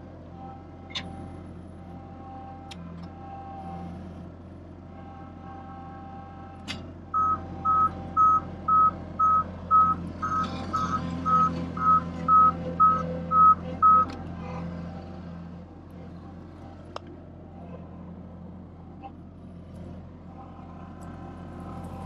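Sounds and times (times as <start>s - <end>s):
truck engine running: 0.0s - 22.0s
reversing alarm beeping: 7.2s - 14.1s.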